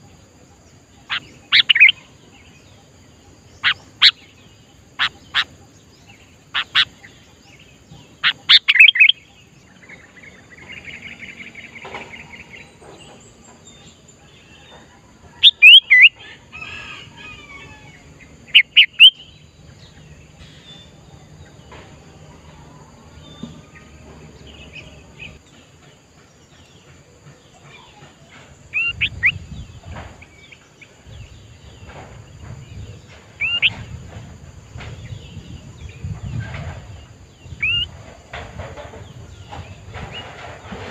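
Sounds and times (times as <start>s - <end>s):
bird buzzy chatter: 0.8s - 16.2s
bird whistled calls: 1.1s - 2.0s, 8.2s - 9.2s, 15.4s - 16.2s, 18.5s - 19.3s, 33.4s - 33.8s.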